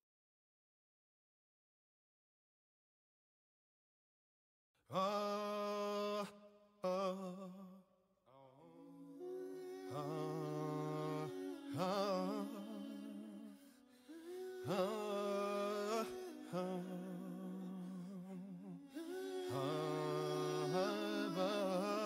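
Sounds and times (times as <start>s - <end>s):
wordless vocal humming: 8.4s - 22.0s.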